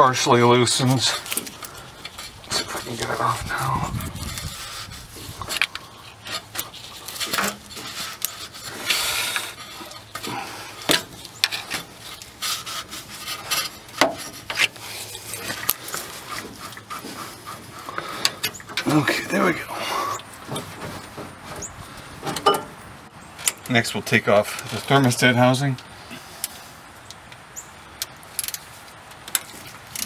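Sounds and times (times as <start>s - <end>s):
rubber hose scraping on metal: 0.0s - 22.8s.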